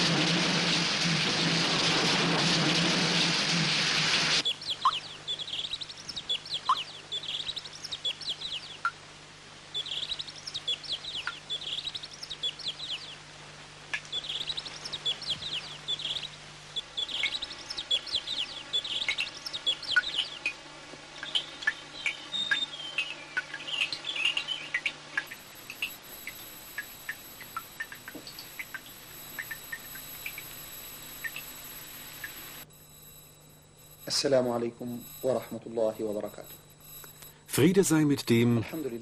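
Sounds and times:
heavy rain: 0:00.0 - 0:04.4
birds chirping: 0:04.3 - 0:39.0
faint steady hum of tones: 0:04.4 - 0:39.0.

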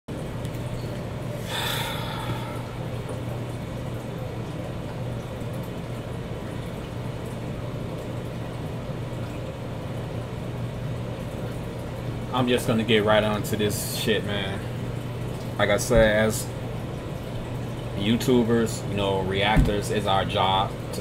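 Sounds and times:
low room hum: 0:00.1 - 0:21.0
breathy hiss: 0:01.4 - 0:02.8.

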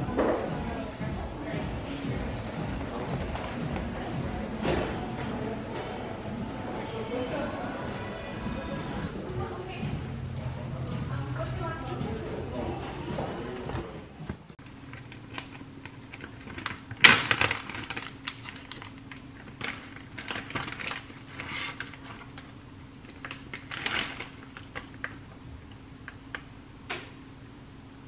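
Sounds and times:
plastic bag crinkling: 0:14.7 - 0:25.3.

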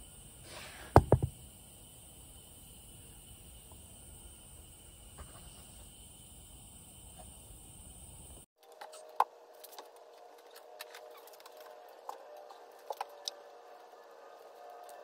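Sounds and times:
hiss with high whine: 0:00.0 - 0:08.5
small items knocking on wooden workbench: 0:00.9 - 0:01.4
faint hum: 0:01.3 - 0:08.5.

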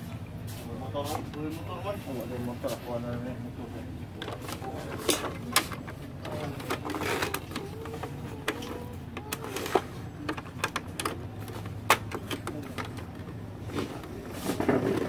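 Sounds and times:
plastic clicks and taps: 0:04.2 - 0:13.4.

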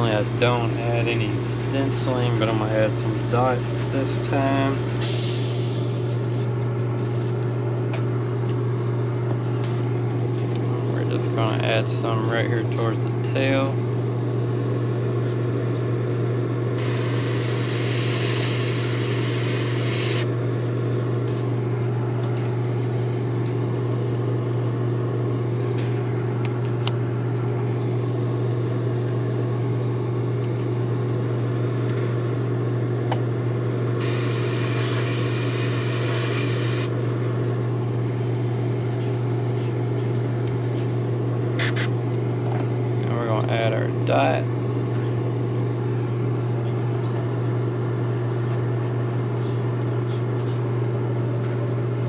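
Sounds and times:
motor hum: 0:16.4 - 0:28.6, 0:33.0 - 0:39.2, 0:41.2 - 0:43.6
airbrush spraying hiss: 0:16.8 - 0:20.3, 0:34.0 - 0:36.9.

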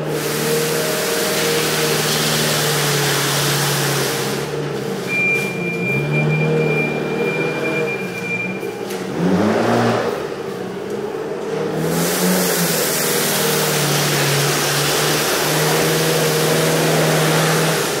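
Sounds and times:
sweeper brush scraping concrete: 0:00.0 - 0:04.6, 0:11.8 - 0:18.0
forklift engine revving: 0:00.0 - 0:18.0.

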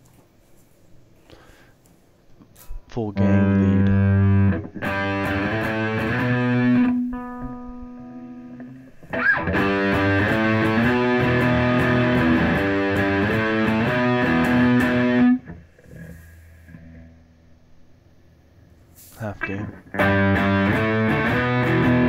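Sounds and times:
distorted electric guitar: 0:03.2 - 0:17.4, 0:19.4 - 0:22.0.

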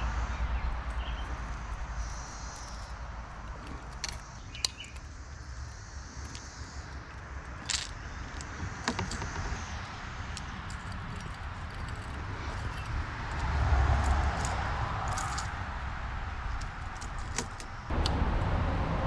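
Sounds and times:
metal fishing lures jingling: 0:00.8 - 0:06.4, 0:10.2 - 0:15.6.

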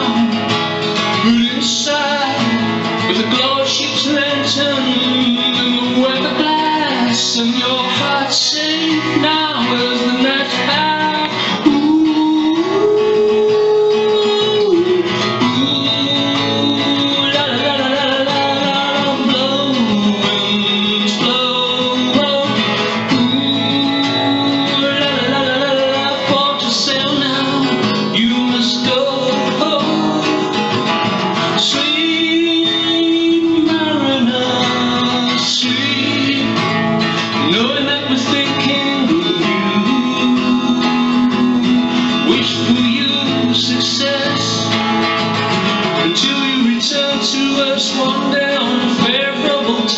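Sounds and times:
acoustic guitar strumming: 0:00.0 - 0:49.9.

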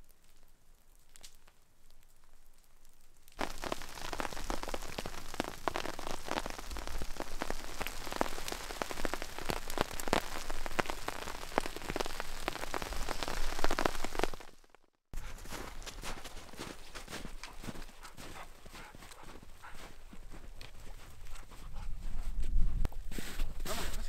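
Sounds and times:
heavy rain drumming on a tarp: 0:03.4 - 0:14.7.

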